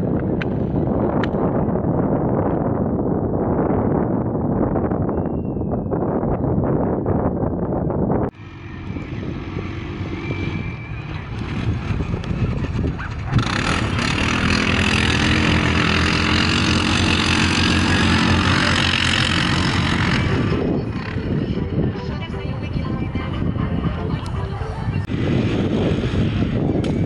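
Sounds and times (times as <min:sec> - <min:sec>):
faint engine noise: 0:08.3 - 0:27.0
atv engine accelerating: 0:08.4 - 0:22.1.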